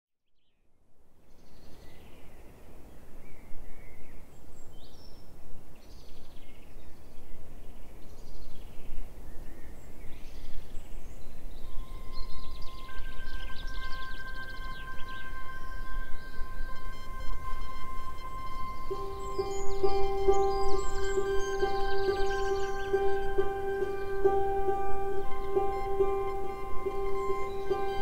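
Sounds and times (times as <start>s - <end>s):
birds singing: 1.3s - 28.0s
held music notes: 11.6s - 28.0s.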